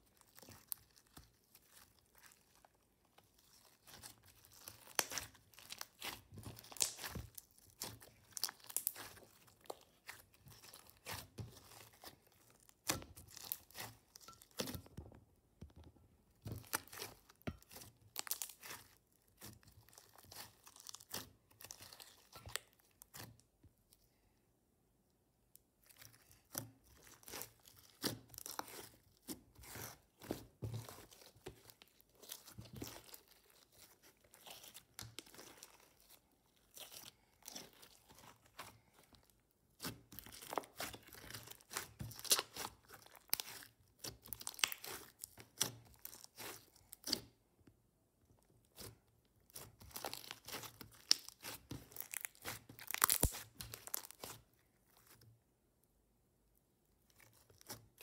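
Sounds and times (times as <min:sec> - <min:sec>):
slime crackling and popping: 0:03.3 - 0:14.9, 0:16.4 - 0:23.4, 0:25.9 - 0:47.4, 0:48.8 - 0:55.2.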